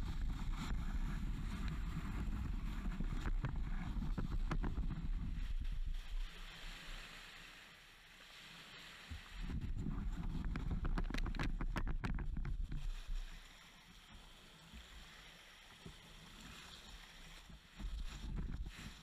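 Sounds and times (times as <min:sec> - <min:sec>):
kayak hull grinding on shingle: 0:09.5 - 0:13.1.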